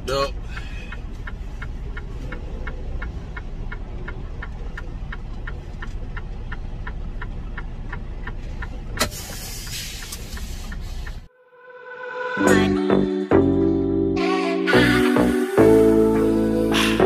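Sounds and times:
diesel truck engine idling: 0:00.0 - 0:11.3
light ticking: 0:00.0 - 0:11.3
air brake hiss: 0:09.0 - 0:11.3.

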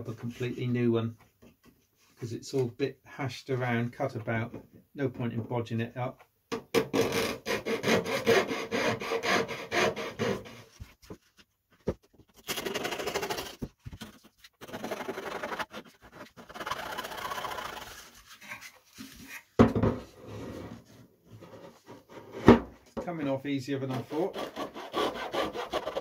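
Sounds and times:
hand saw rasping through wood: 0:07.0 - 0:10.7, 0:14.6 - 0:17.8, 0:23.8 - 0:26.0.

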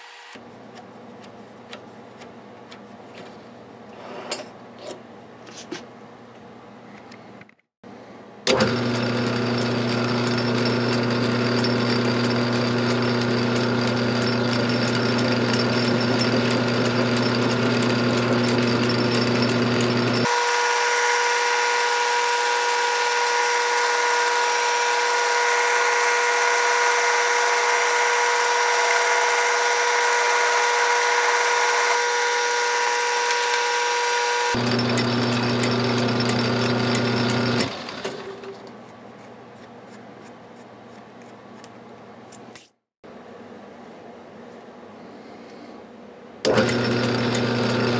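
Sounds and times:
metal lathe running: 0:08.5 - 0:38.5, 0:46.5 - 0:47.9.

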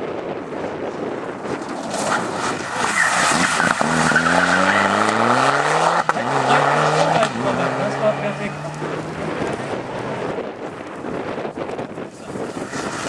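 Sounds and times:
tyres scrabbling on gravel: 0:01.4 - 0:07.8, 0:12.1 - 0:13.0
car engine accelerating: 0:01.5 - 0:11.5.

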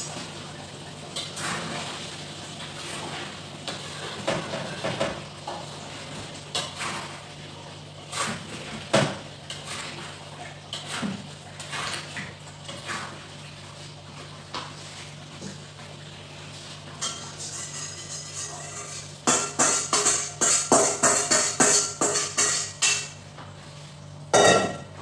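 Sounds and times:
spatula scraping a wok: 0:17.0 - 0:23.1.

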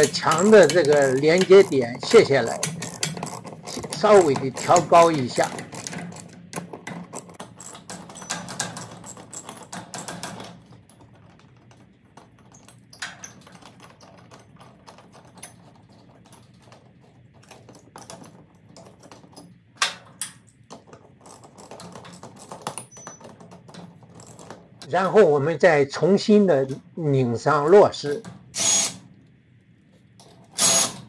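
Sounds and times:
socket ratchet clicking: 0:00.0 - 0:10.4, 0:28.5 - 0:29.0, 0:30.6 - 0:31.0.

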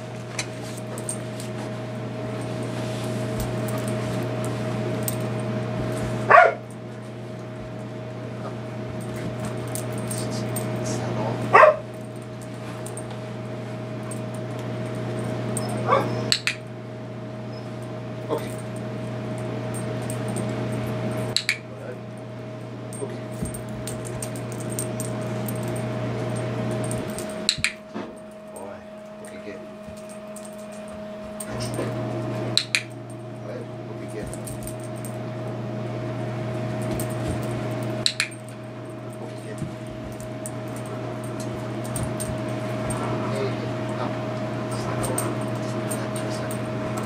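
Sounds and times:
steady background hum: 0:00.0 - 0:47.0
dog barking: 0:06.3 - 0:06.6, 0:11.5 - 0:11.9, 0:15.6 - 0:16.3.

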